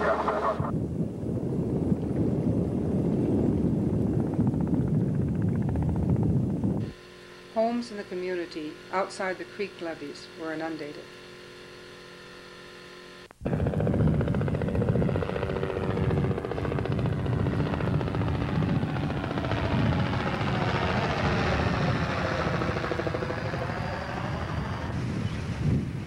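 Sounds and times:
loud engine throbbing: 0.0 - 0.7, 13.4 - 26.0
faint steady hum: 0.0 - 26.0.

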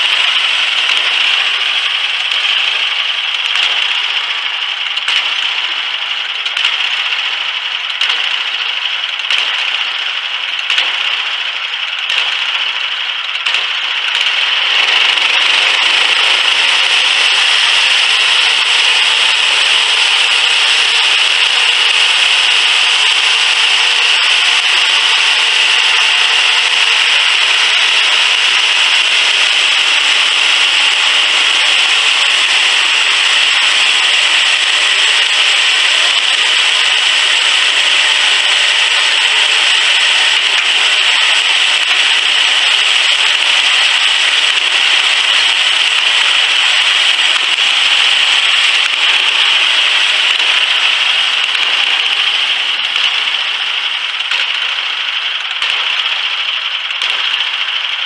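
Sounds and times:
bandsaw blade sawing log: 0.0 - 58.0.

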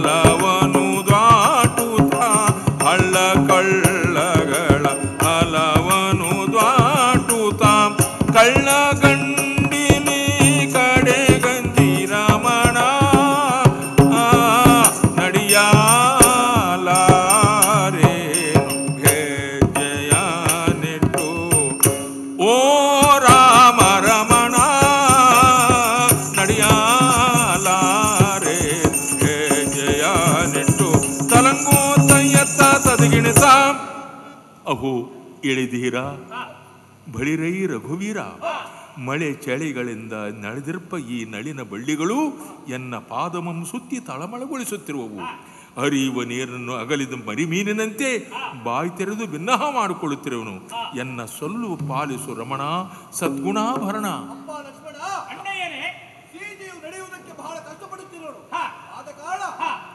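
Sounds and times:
fast metallic percussion: 0.0 - 34.0, 51.4 - 55.5
person singing ornamented melody: 0.0 - 34.8.

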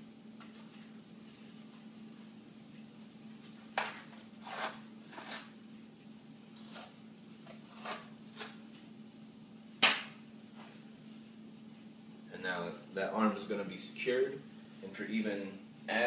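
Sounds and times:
sharp crack: 9.8 - 10.2.

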